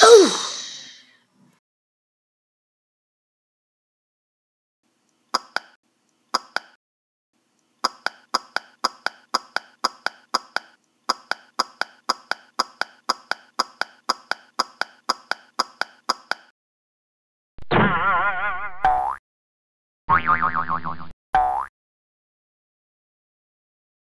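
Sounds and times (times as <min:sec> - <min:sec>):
springy boing effect: 0:20.1 - 0:21.7.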